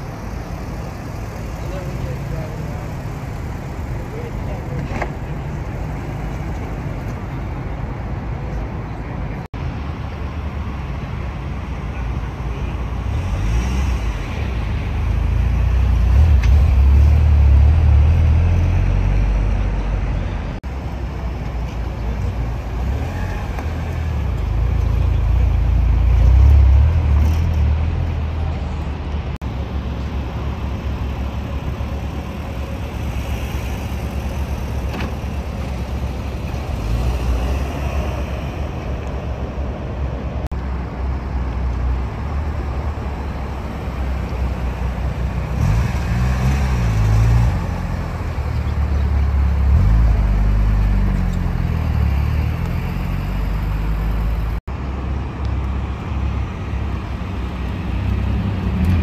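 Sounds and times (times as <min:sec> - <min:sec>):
sports car engines idling: 0:00.0 - 0:13.4, 0:19.8 - 0:45.6
cars driving off: 0:00.0 - 0:59.0.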